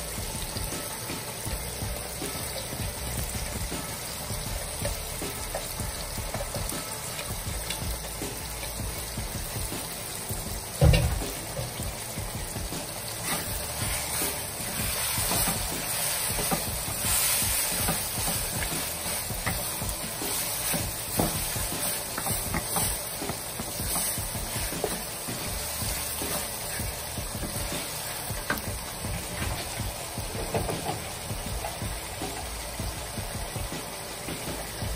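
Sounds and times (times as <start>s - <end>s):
vegetables sizzling in oil: 0.0s - 34.9s
spatula scraping pan: 13.1s - 28.2s.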